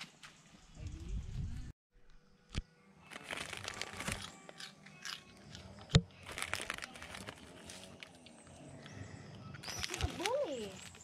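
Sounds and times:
monkey crunching food: 0:03.7 - 0:07.5.

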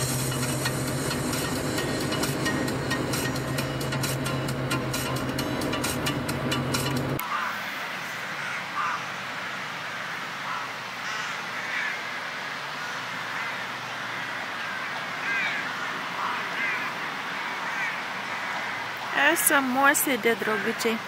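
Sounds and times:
music: 0:00.0 - 0:07.2
crows cawing: 0:07.2 - 0:19.2, 0:20.3 - 0:21.0.

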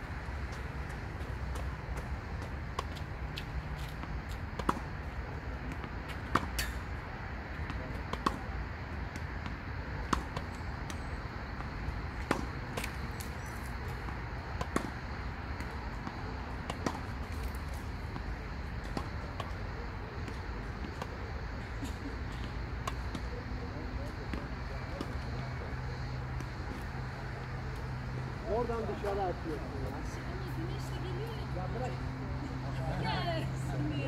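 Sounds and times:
racket hitting tennis ball: 0:03.8 - 0:04.9, 0:12.2 - 0:13.0, 0:14.6 - 0:15.0, 0:16.6 - 0:17.5.

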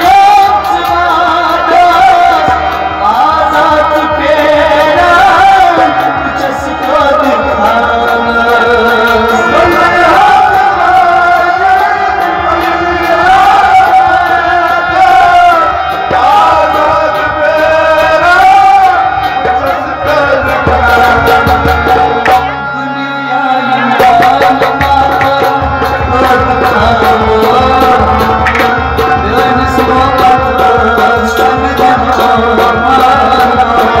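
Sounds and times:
harmonium: 0:00.0 - 0:34.0
man singing: 0:00.0 - 0:34.0
hand drum beats: 0:19.2 - 0:22.6, 0:23.9 - 0:34.0.

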